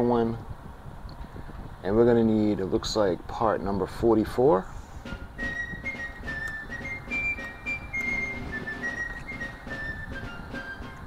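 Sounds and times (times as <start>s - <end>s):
background music: 5.0s - 11.0s.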